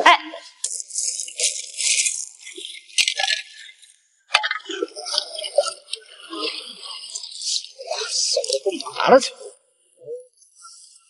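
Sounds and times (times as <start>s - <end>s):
water sloshing: 0.6s - 8.8s.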